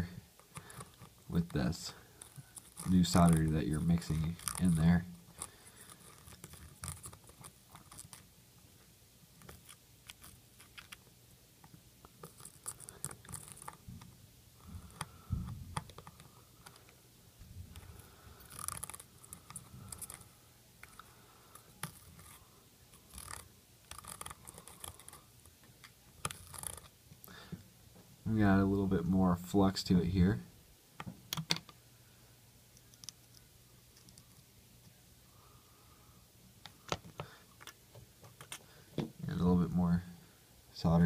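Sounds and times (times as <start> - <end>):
soldering iron scratching: 0.8 - 8.2.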